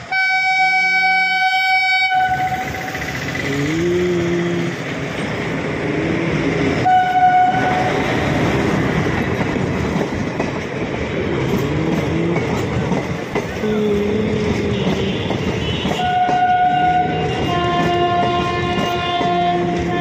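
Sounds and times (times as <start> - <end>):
train horn blasts: 0.0 - 3.1, 6.8 - 8.2, 14.5 - 20.0
train wheels clattering on rails: 2.1 - 20.0.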